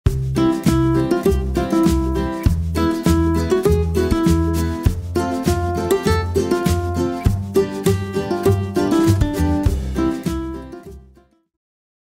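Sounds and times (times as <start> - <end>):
bright intro melody: 0.1 - 11.1
steady bass line: 0.1 - 11.1.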